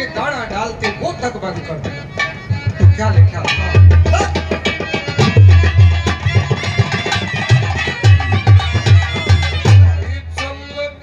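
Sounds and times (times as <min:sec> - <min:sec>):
folk melody instrument: 0:00.0 - 0:11.0
fast hand drum beat: 0:02.3 - 0:10.6.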